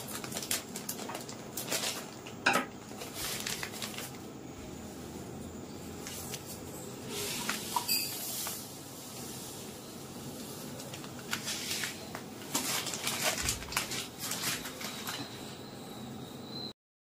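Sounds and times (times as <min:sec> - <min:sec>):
sand rustling in plastic cup: 0:07.1 - 0:15.1.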